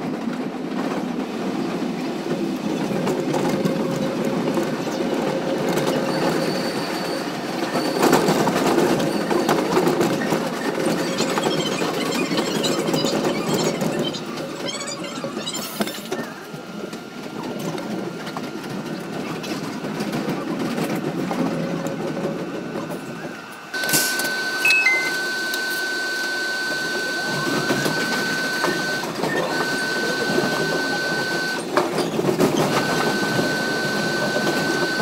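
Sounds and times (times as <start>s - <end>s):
subway train rumble and rattle: 0.0s - 24.6s, 25.2s - 35.0s
steady high tone: 24.4s - 31.6s
two-note falling tone: 24.6s - 25.7s.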